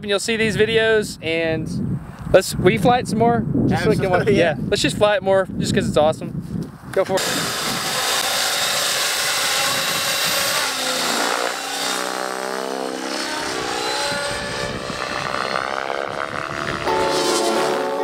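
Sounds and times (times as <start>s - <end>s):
model helicopter motor whine: 7.2s - 18.0s.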